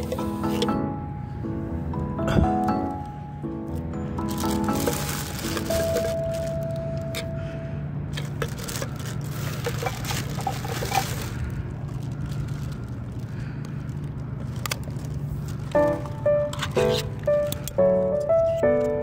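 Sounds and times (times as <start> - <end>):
steady low hum: 0.0 - 19.0
plastic bag rustling and crinkling: 4.2 - 7.2, 8.1 - 17.6.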